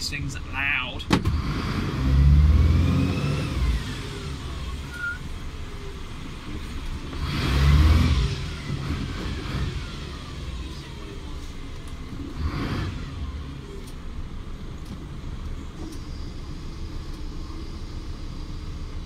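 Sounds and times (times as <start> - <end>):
diesel truck engine revving: 1.1 - 19.0
rising and falling whistle: 4.9 - 5.3.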